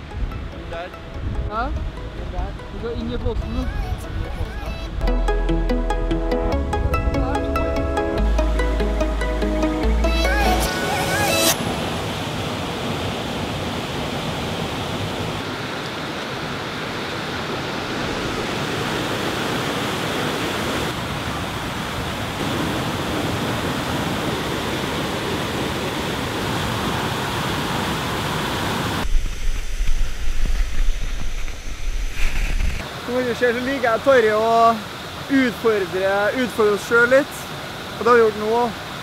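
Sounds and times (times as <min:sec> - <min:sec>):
wind buffeting microphone: 0:00.0 - 0:05.0
waterfall rushing: 0:06.7 - 0:39.0.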